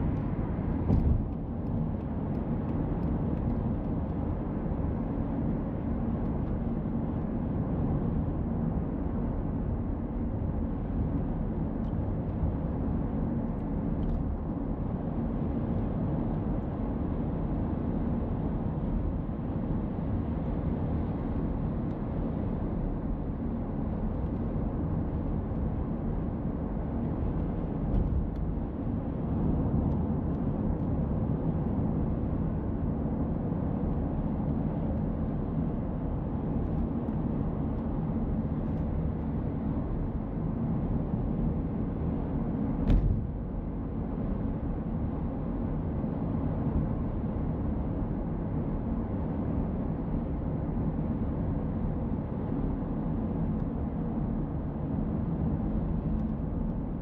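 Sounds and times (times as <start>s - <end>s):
car tyres and engine rumble: 0.0s - 57.0s
sharp thump: 0.9s - 1.3s, 42.8s - 43.4s.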